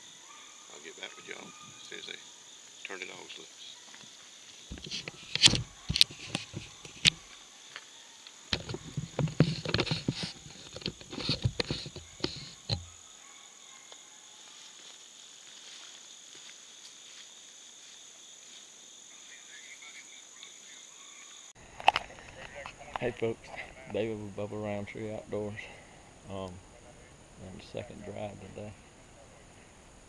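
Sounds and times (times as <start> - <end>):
insect chorus: 0.0 - 30.0
close knocks and rustles: 4.7 - 7.2, 8.5 - 12.9.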